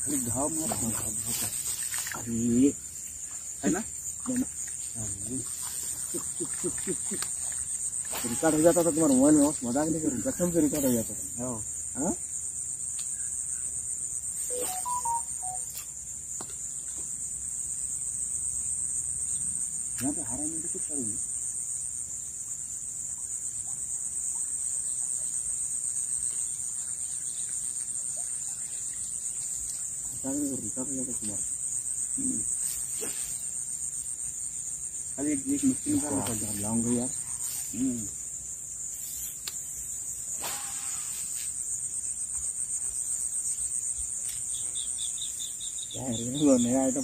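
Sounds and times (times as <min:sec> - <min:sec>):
insects chorus: 0:00.0 - 0:47.0
short high notes: 0:14.5 - 0:15.7
faint short chirps: 0:14.5 - 0:15.9.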